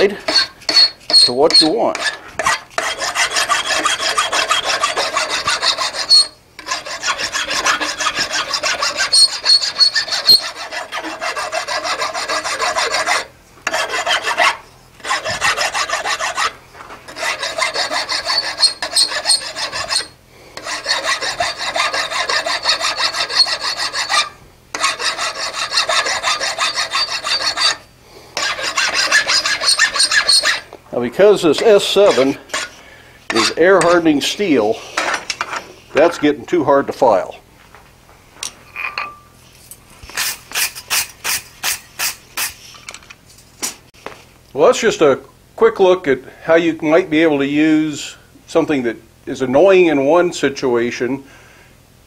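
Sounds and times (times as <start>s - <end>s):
file rasping on steel: 0.0s - 30.7s, 31.5s - 34.1s, 40.1s - 42.6s.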